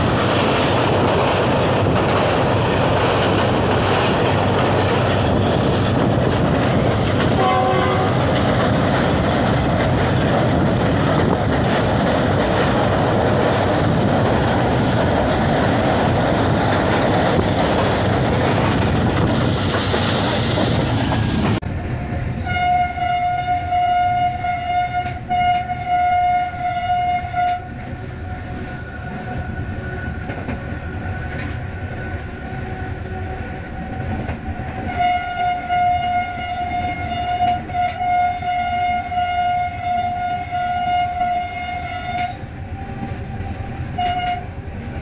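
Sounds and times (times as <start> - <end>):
train rumbling on track: 0.0 - 45.0
locomotive horn blasts: 7.3 - 8.4, 22.4 - 27.8, 34.8 - 44.6.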